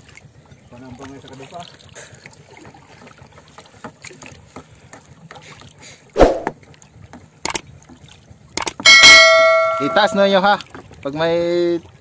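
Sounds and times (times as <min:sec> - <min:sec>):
wind: 0:00.0 - 0:12.0
loud thump: 0:06.2 - 0:06.6
sharp clicks: 0:08.6 - 0:08.8
sea noise: 0:08.7 - 0:10.4.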